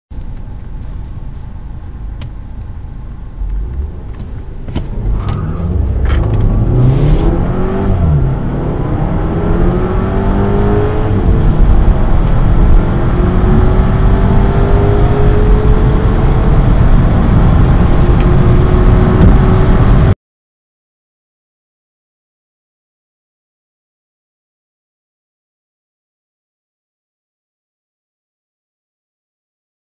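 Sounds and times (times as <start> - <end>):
car engine accelerating: 0.2 - 20.2.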